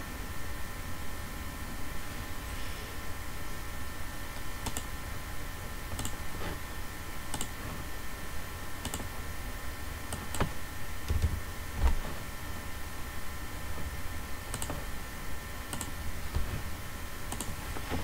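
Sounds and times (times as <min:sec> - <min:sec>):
steady hiss with faint hum: 0:00.0 - 0:18.0
computer mouse clicks: 0:04.6 - 0:04.9, 0:05.9 - 0:06.2, 0:07.3 - 0:07.6, 0:08.8 - 0:09.1, 0:14.5 - 0:14.8, 0:15.7 - 0:16.0, 0:17.3 - 0:18.0
keyboard keystrokes: 0:08.8 - 0:09.1, 0:14.5 - 0:14.8.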